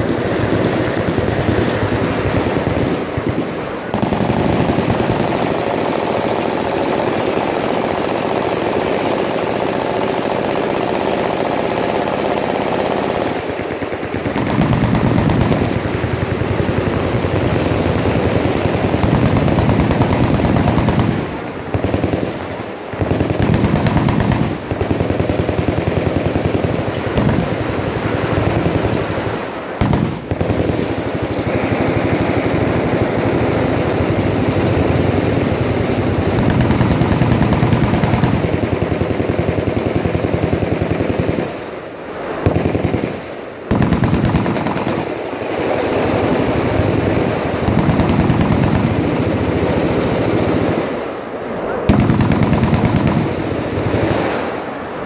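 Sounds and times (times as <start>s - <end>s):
machine gun bursts: 0.0s - 31.0s, 36.3s - 41.4s, 43.7s - 49.6s, 51.9s - 54.2s.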